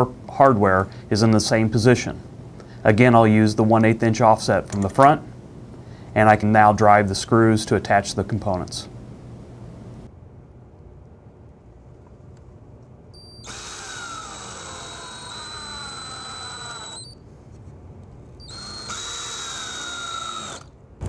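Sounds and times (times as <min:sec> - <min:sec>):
power drill driving screws into metal: 0:13.4 - 0:17.2, 0:18.4 - 0:20.7.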